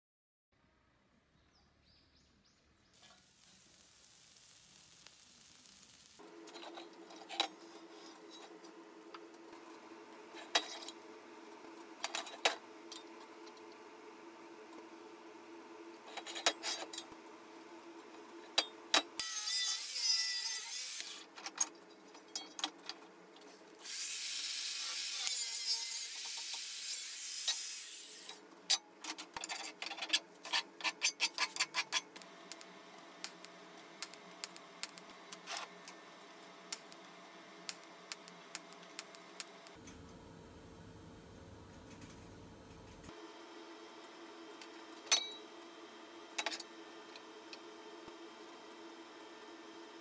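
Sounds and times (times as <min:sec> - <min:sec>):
angle grinder cutting steel: 0:19.2 - 0:21.3, 0:23.8 - 0:28.4
low hum: 0:32.4 - 0:43.1.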